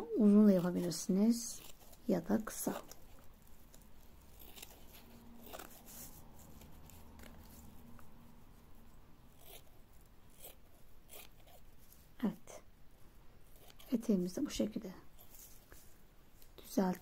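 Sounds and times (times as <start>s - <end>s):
scissors snipping netting: 0.6s - 5.8s.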